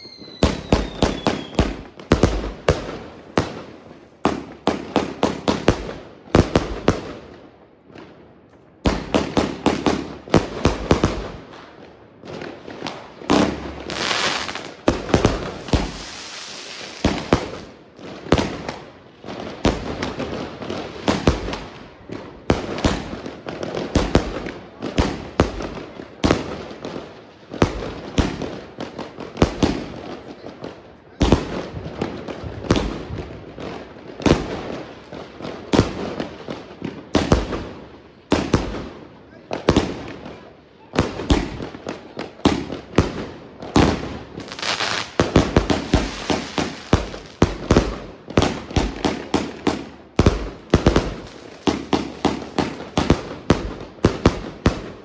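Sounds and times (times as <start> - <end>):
firework bangs: 0.0 - 8.2, 8.8 - 55.0
firework hissing: 13.5 - 17.3, 44.4 - 47.4.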